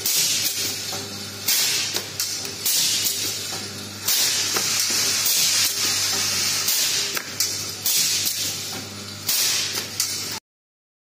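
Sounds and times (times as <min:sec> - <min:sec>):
welding machine hissing bursts: 0:01.4 - 0:10.4.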